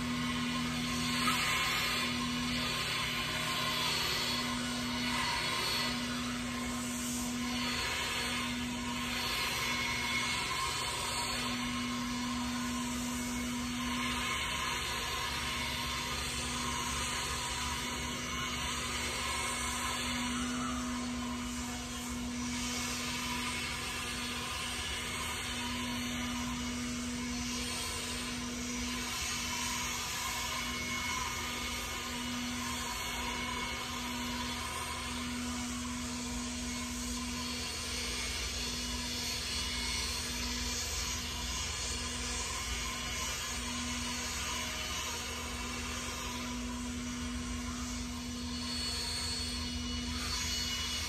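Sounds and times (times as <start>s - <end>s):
distant lawn power tool: 0.0s - 51.0s.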